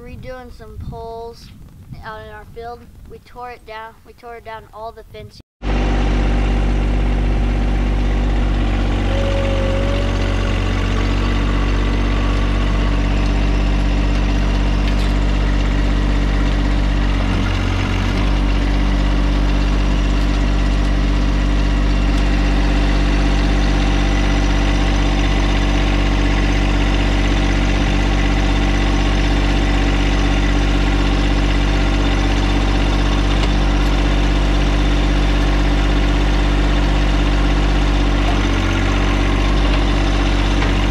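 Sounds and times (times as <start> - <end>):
diesel tractor engine idling: 5.6 - 40.9.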